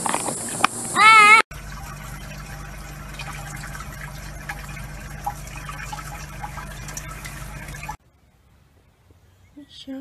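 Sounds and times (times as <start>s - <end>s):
tap water running into sink: 1.5s - 8.0s.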